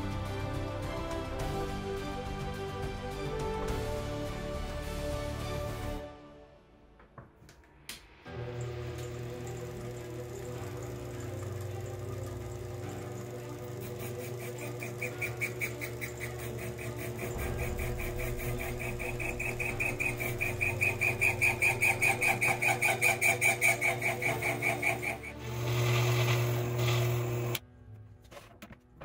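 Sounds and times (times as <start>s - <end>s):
lathe motor humming: 8.4s - 27.6s
pulsing high-pitched cutting tone: 13.8s - 27.6s.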